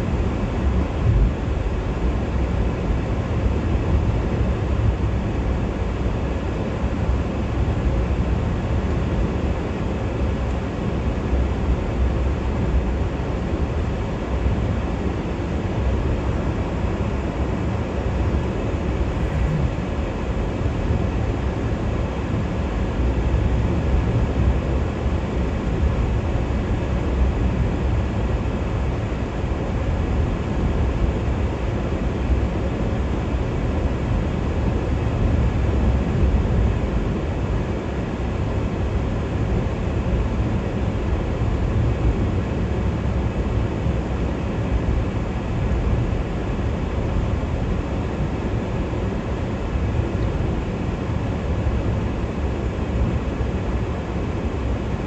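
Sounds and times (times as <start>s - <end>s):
car driving at highway speed: 0.1s - 27.3s.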